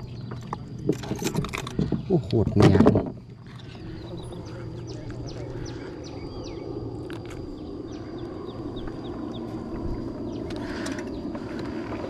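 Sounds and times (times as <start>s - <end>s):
small birds chirping: 0.0s - 12.0s
low rushing noise: 3.8s - 12.0s.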